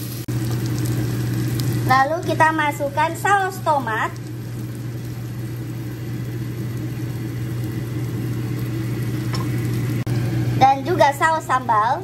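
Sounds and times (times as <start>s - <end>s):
food frying softly in a pot: 0.0s - 12.0s
low motor hum: 0.0s - 12.0s.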